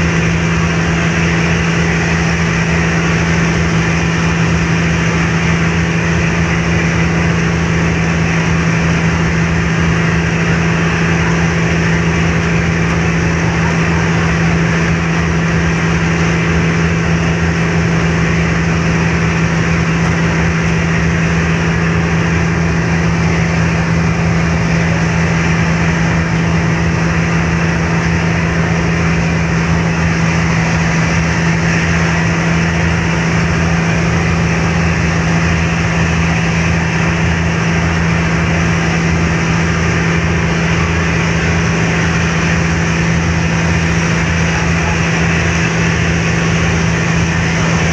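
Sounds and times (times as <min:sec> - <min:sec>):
even rush of noise: 0:00.0 - 0:47.9
ship engines humming: 0:00.0 - 0:47.9.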